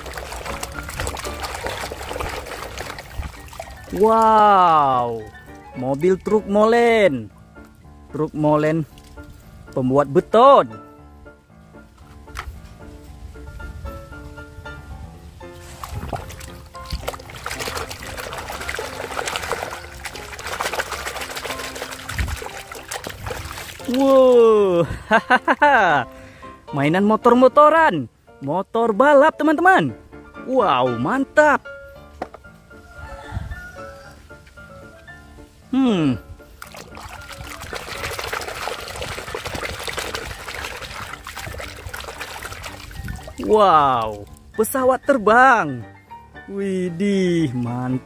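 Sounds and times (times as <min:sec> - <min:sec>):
water splashing in plastic basin: 0:00.0 - 0:06.0, 0:15.6 - 0:24.9, 0:36.6 - 0:44.4.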